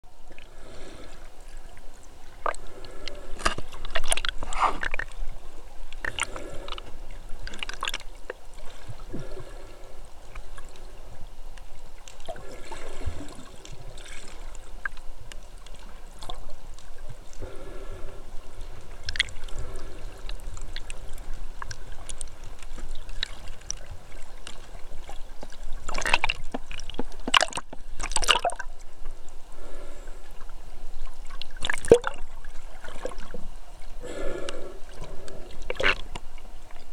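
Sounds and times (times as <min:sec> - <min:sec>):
water sloshing and gurgling: 0:00.0 - 0:36.9
sharp water splashes: 0:31.6 - 0:32.2.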